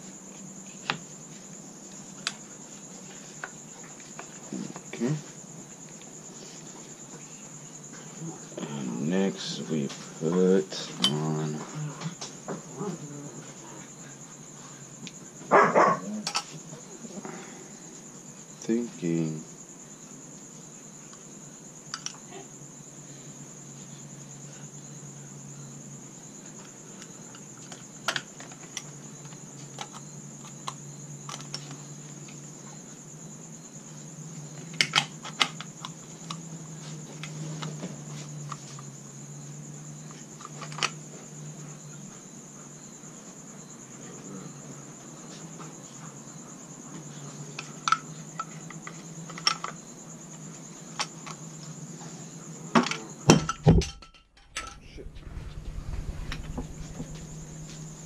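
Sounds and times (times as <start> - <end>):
steady high-pitched whine: 51.5 - 58.0
metal knocking on wooden stock: 53.3 - 54.9
low hum: 53.8 - 58.0.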